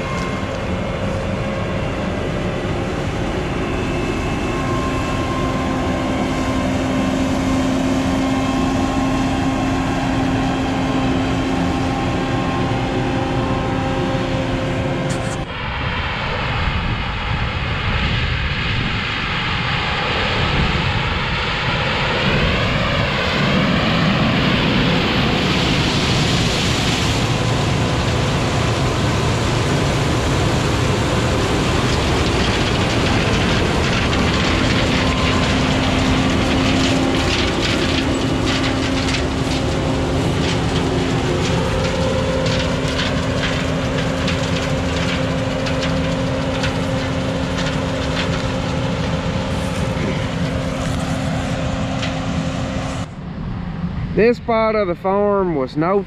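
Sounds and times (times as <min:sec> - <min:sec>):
diesel engine running: 0:00.0 - 0:15.5, 0:18.7 - 0:54.3
wavering whine: 0:00.0 - 0:54.5
rattling: 0:31.8 - 0:51.0.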